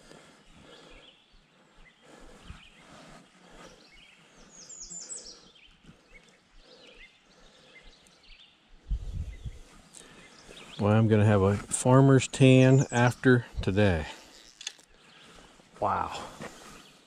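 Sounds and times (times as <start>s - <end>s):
birds chirping: 0.0s - 17.0s
fishing rod and line handling: 14.1s - 15.0s.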